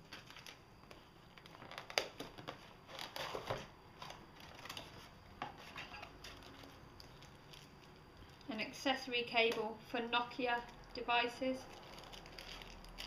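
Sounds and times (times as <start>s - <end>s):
packaging clicks and rustles: 0.0s - 8.5s, 11.6s - 13.0s.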